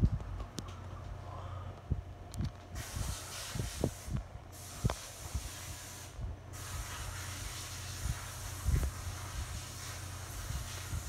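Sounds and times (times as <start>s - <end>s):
electric fan running: 0.0s - 11.0s.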